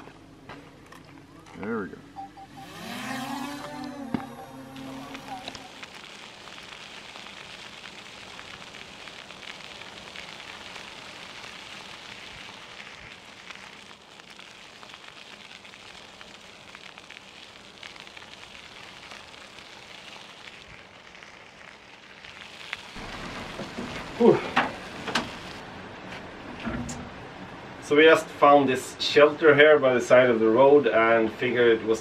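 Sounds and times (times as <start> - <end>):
bicycle tyres rolling on gravel: 2.6 - 26.7.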